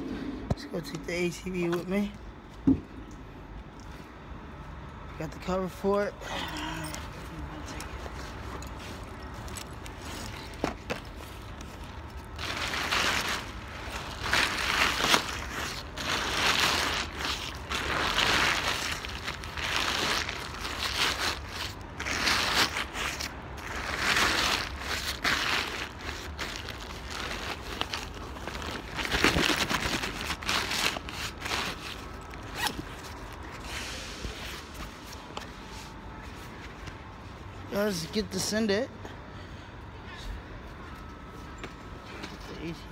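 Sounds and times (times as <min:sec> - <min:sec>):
nylon cover crinkling: 0:07.6 - 0:35.5.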